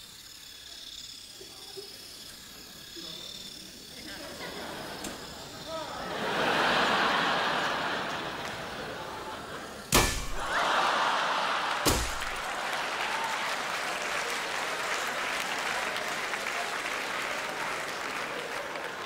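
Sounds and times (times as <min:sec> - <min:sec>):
audience laughing: 0:03.9 - 0:19.0
audience applauding: 0:06.0 - 0:19.0
mallet smashing toy car: 0:09.9 - 0:10.6, 0:11.8 - 0:12.5.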